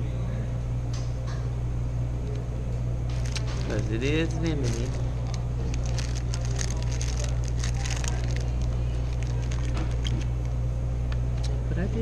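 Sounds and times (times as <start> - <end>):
steady low hum: 0.0 - 12.0
plastic wrapping crinkling: 3.1 - 10.5.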